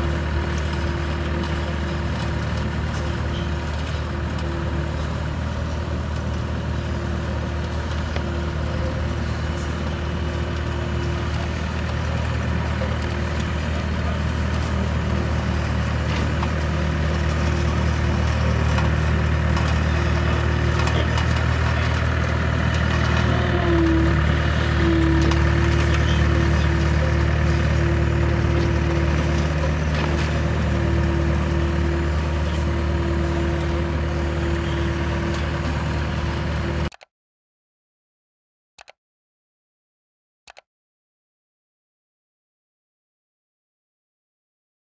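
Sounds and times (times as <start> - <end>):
road roller diesel engine: 0.0 - 37.1.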